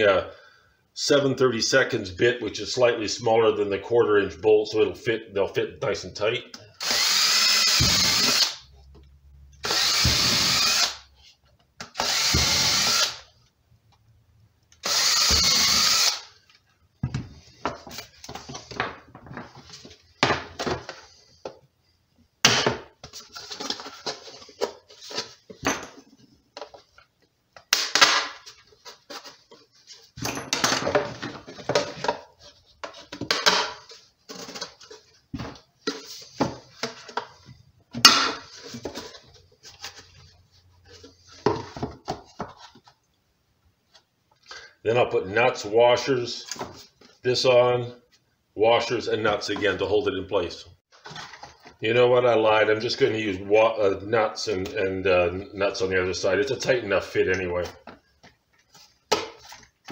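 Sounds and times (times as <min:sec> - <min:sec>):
cordless drill boring plastic: 0:06.8 - 0:08.6, 0:09.6 - 0:11.0, 0:12.0 - 0:13.2, 0:14.8 - 0:16.3.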